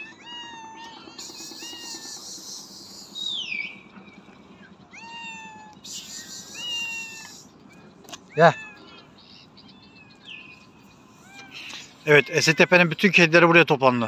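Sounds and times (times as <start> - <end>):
cats meowing: 0.0 - 2.8, 4.9 - 13.3.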